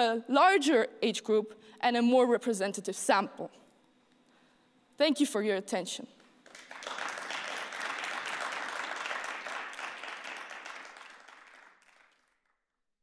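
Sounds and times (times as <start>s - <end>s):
audience applauding: 6.4s - 12.5s.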